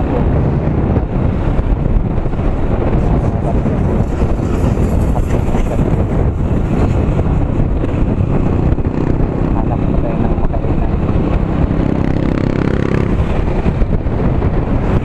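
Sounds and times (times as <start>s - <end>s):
motorcycle engine: 0.0s - 15.0s
road noise: 0.0s - 15.0s
wind rush on microphone: 0.0s - 15.0s.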